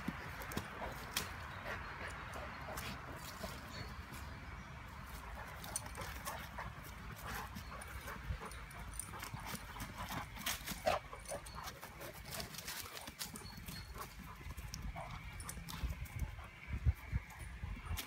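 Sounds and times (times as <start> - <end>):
dogs scuffling on grass: 0.0 - 18.0
dog noises: 5.2 - 18.0.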